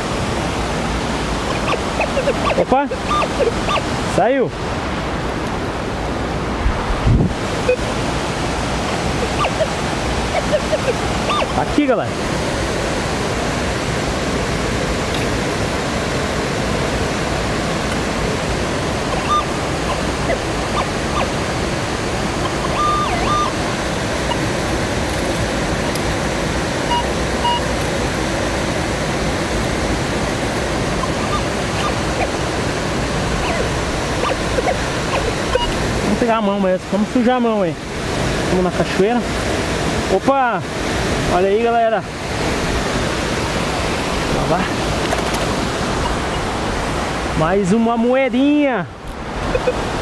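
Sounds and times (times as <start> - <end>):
waterfall rushing: 0.0 - 50.0
metal detector beeps: 1.5 - 3.9, 9.2 - 11.6, 19.1 - 21.4, 22.4 - 23.6, 24.2 - 24.6, 26.8 - 27.8, 30.9 - 32.4, 33.4 - 35.8, 49.5 - 49.8.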